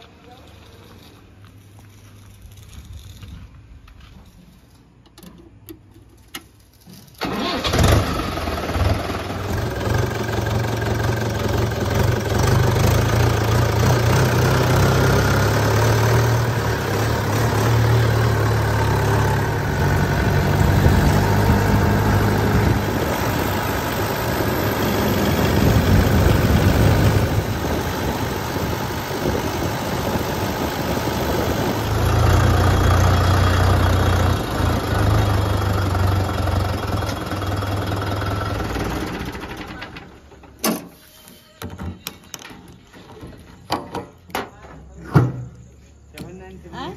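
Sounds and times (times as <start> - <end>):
tractor diesel engine starting and running: 5.1 - 41.4.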